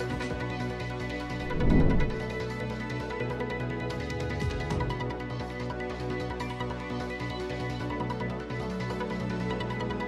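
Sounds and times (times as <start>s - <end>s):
low transition swell: 1.3s - 2.4s.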